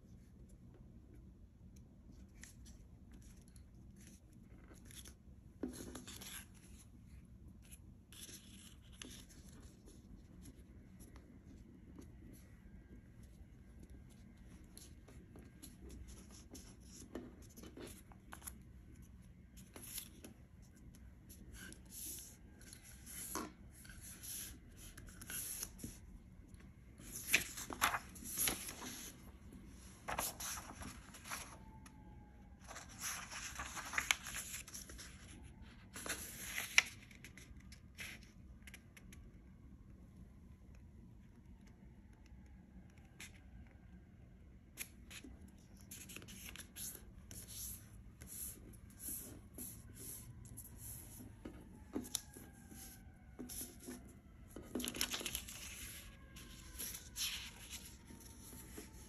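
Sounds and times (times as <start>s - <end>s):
paper rustling and creasing: 13.1s - 32.0s, 32.6s - 38.8s, 45.1s - 59.0s.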